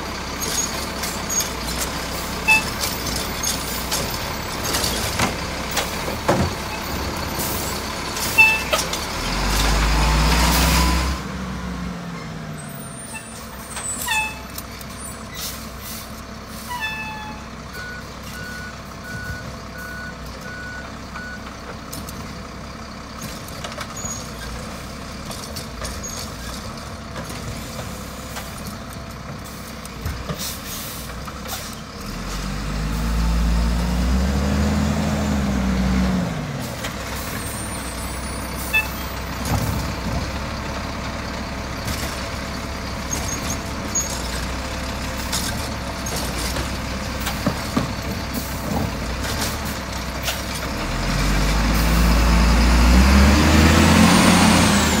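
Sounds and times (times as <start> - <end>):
garbage truck engine revving: 0.0 - 14.0, 30.2 - 55.0
clanks and rattles: 0.4 - 6.9, 21.7 - 30.5, 43.0 - 50.8.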